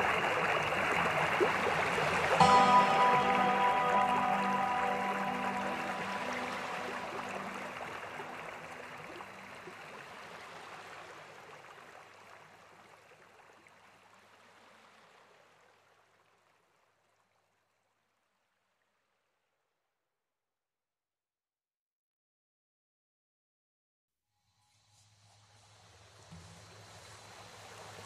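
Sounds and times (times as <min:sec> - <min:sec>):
faint music tones: 0:00.0 - 0:11.0.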